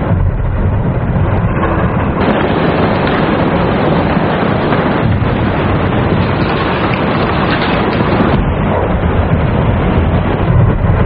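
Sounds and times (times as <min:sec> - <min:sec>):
deep rumble: 0:00.0 - 0:11.0
snow pouring in: 0:02.2 - 0:10.2.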